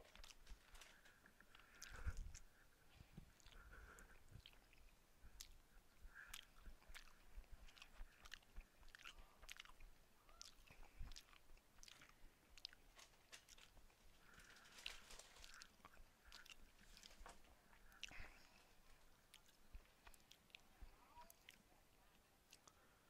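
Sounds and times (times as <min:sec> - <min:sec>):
person chewing with wet mouth clicks: 0:01.4 - 0:02.5, 0:03.3 - 0:12.8, 0:15.4 - 0:22.9.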